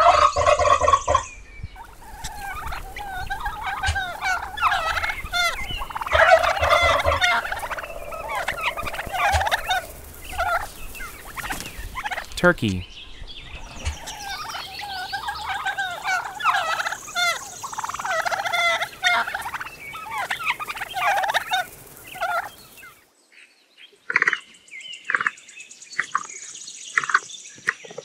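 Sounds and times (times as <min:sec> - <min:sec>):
turkeys gobbling: 0:00.0 - 0:01.2, 0:01.8 - 0:12.4, 0:13.6 - 0:23.0.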